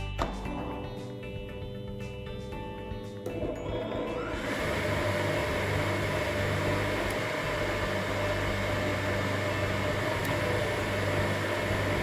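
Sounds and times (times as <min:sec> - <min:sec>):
electric motor humming: 0:03.9 - 0:12.0.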